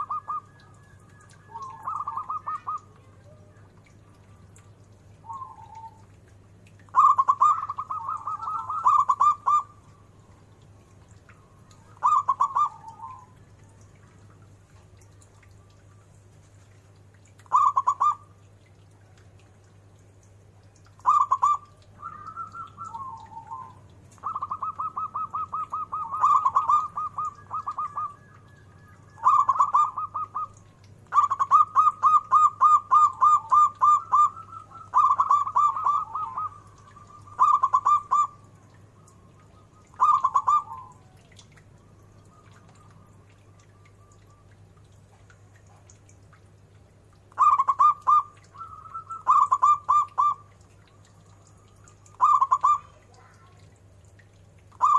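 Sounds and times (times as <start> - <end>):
dove cooing: 0.0 - 6.2, 6.8 - 10.0, 11.3 - 13.9, 17.4 - 18.3, 21.0 - 41.5, 47.3 - 53.6.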